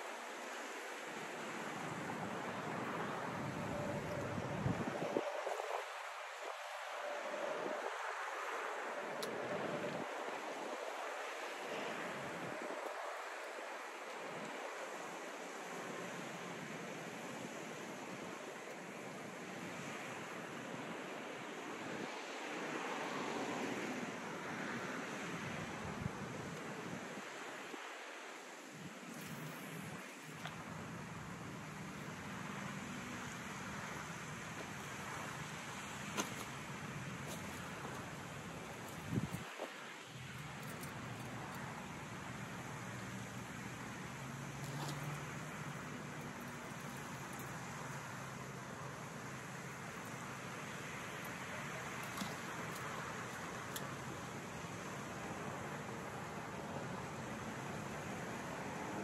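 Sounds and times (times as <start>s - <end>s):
rushing wind: 0.0s - 18.6s, 19.8s - 47.8s.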